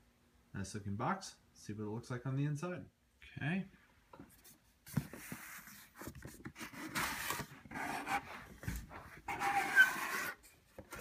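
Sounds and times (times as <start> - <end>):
cardboard flaps scraping and rustling: 4.9 - 11.0.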